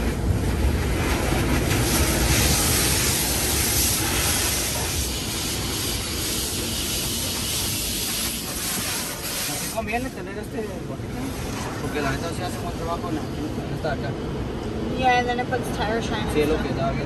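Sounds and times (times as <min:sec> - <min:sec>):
water jets spraying on car: 0:00.0 - 0:14.5
steady low rumble: 0:00.0 - 0:17.0.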